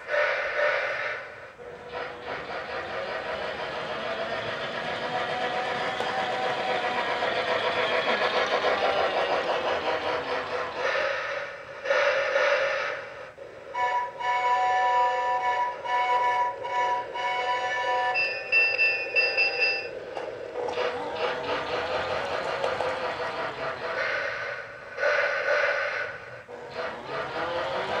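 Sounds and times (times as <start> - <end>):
toy train motor and gears: 0.0 - 28.0
electronic train bell ringing: 17.8 - 20.0.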